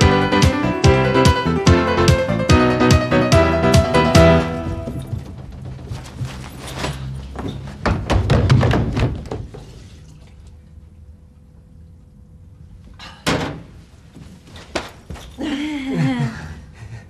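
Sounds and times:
sharp knocks and thuds: 7.7 - 9.7.

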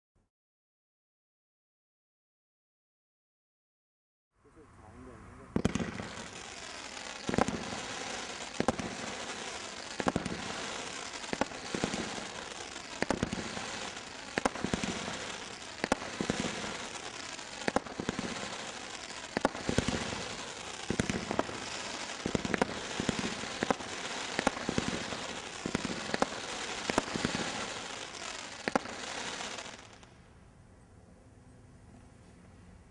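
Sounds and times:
roman candle shots: 4.5 - 30.1
fireworks crackling: 5.4 - 30.2.

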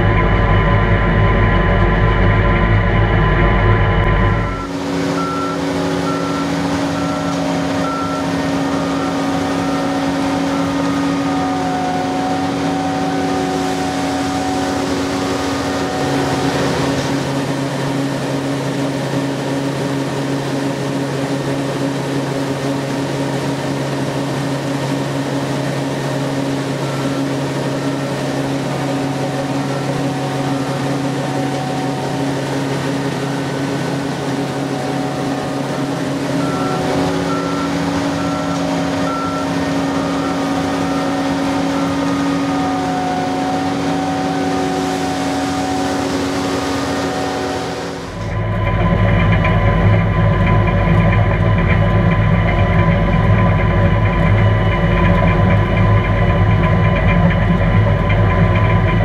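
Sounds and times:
rapid electronic beeping: 0.0 - 18.1, 26.5 - 53.2
combine harvester engine running: 0.0 - 59.0.

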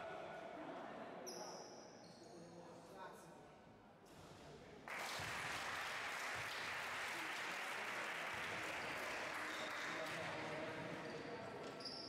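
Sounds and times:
small crowd clapping: 4.8 - 11.1.

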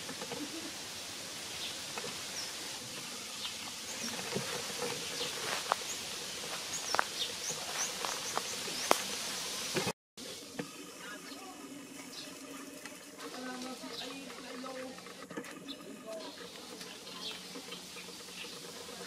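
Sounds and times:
insect hiss: 0.0 - 12.4
high bird chirps: 5.0 - 9.1.

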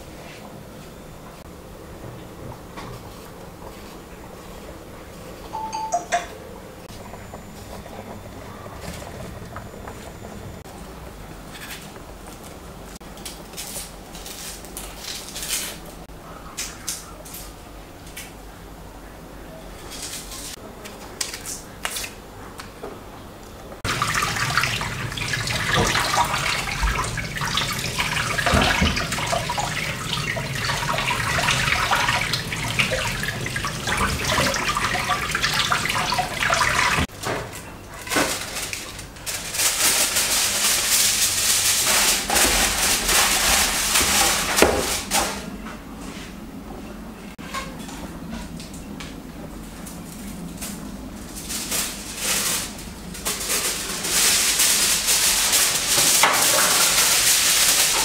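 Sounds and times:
tap water running: 23.8 - 37.1, 54.4 - 58.0.

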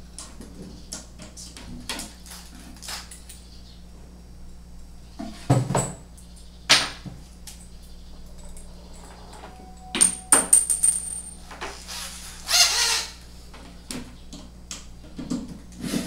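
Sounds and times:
brief high ring: 9.5 - 10.6
sharp metallic clinks: 9.6 - 11.4.

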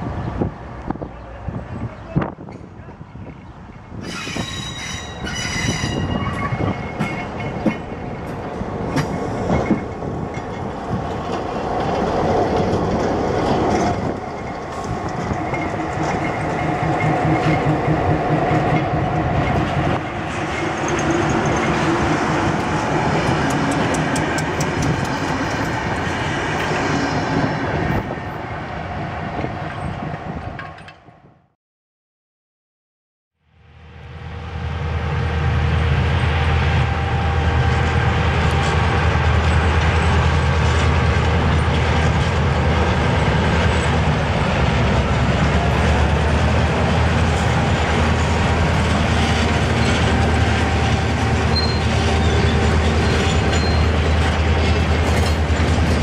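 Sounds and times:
wheels clacking over rail joints: 6.1 - 26.9, 38.4 - 56.0
diesel locomotive engine running: 34.4 - 56.0
wheels squealing: 49.2 - 56.0.

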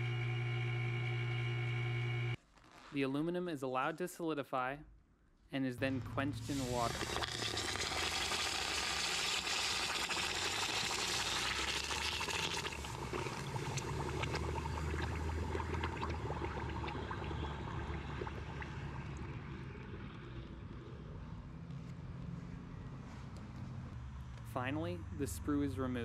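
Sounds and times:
water hissing on hot metal: 6.4 - 19.0.

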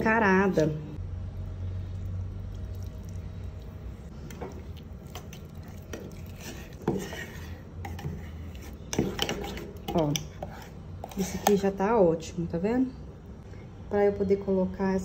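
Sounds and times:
metal spoon stirring in mug: 5.0 - 11.6.

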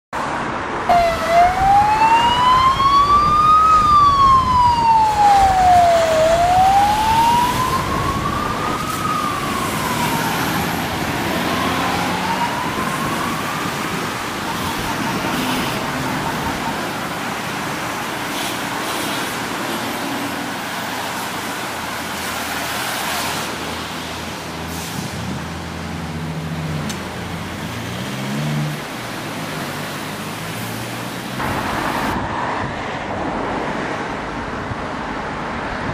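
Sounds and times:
street traffic noise: 0.1 - 35.9
ambulance siren wailing: 0.9 - 18.4.

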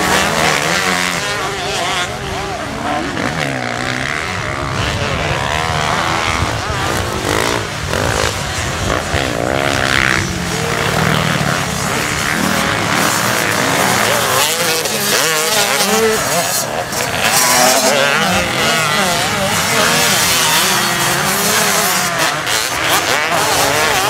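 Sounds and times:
motocross bike engines revving: 0.0 - 24.0.

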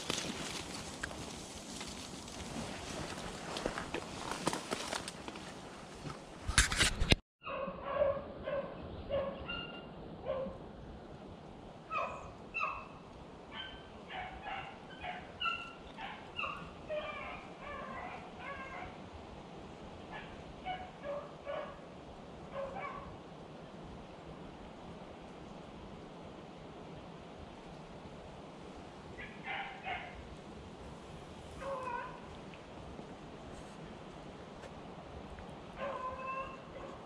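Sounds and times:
beagles baying: 11.9 - 19.0, 29.2 - 30.2, 31.6 - 32.4, 35.7 - 37.0.

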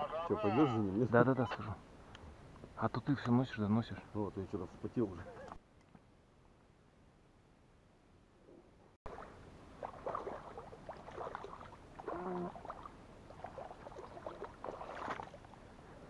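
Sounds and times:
small splashes and clicks: 9.1 - 15.6
wading through shallow water: 9.1 - 15.8.

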